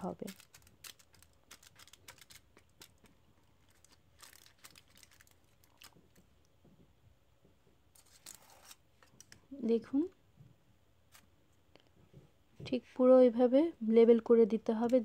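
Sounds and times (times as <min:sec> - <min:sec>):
fingers pressing crumbs ticks: 0:00.1 - 0:03.1.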